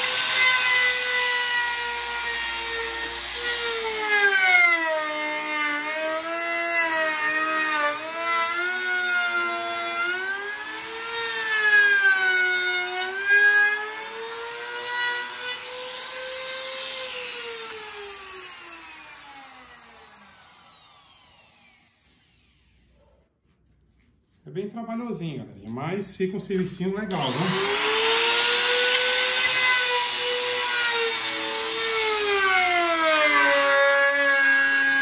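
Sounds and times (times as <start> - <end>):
router cutting wood: 0.0 - 22.9, 27.1 - 35.0
router winding down: 12.9 - 22.9, 27.1 - 35.0.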